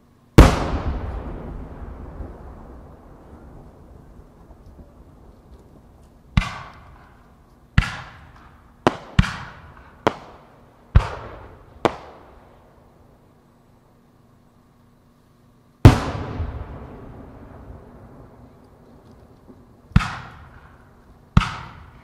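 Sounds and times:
fireworks booming with echo: 0.4s - 13.2s, 15.8s - 22.0s.

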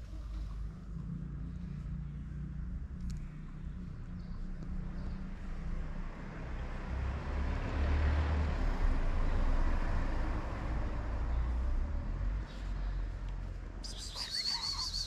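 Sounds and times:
vehicle driving past: 3.8s - 15.0s.

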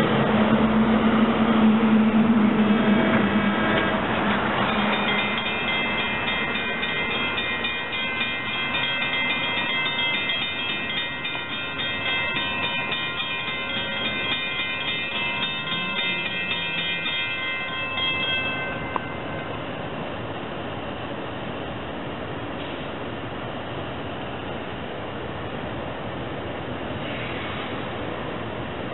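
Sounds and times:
electric train rumble: 0.0s - 28.9s
bell ringing rapidly: 4.7s - 18.9s.

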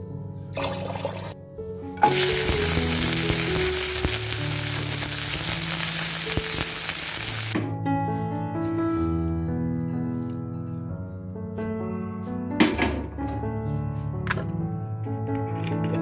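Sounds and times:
vegetables sizzling in hot oil: 2.0s - 7.6s.

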